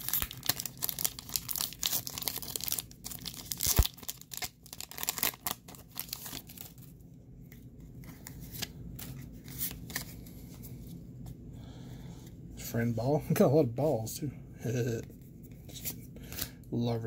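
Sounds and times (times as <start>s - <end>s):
foil wrapper tearing and crinkling: 0.0s - 6.8s.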